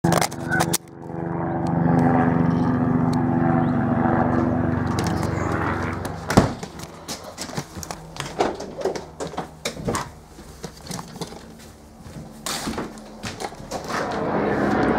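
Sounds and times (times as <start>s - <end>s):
helicopter drone passing: 0.0s - 14.9s
camera handling knocks and rattles: 4.8s - 11.6s.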